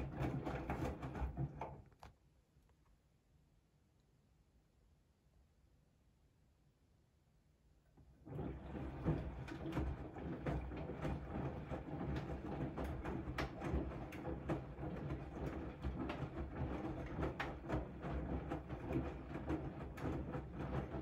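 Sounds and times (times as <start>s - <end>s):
washing machine drum rumbling: 8.3s - 21.0s
water sloshing and splashing: 8.3s - 21.0s.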